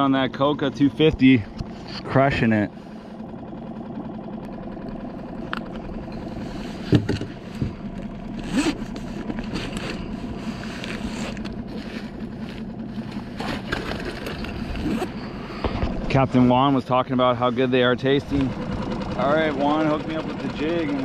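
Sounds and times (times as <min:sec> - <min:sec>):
small boat motor running: 0:00.0 - 0:21.0
scrapes and knocks of handling: 0:06.2 - 0:07.8
zipper rasping: 0:08.4 - 0:15.4.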